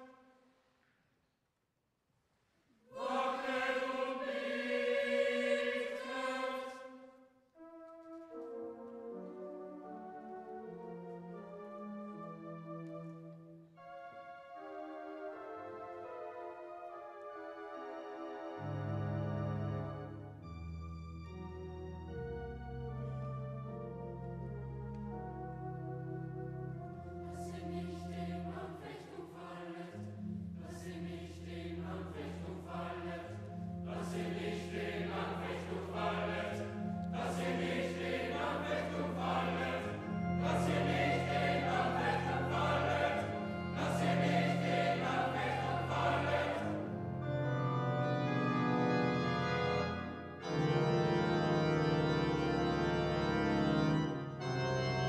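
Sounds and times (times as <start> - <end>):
boys' choir singing: 2.9 - 7.0, 27.4 - 30.0, 30.6 - 46.9
electronic organ chords: 9.4 - 27.8, 33.5 - 55.0.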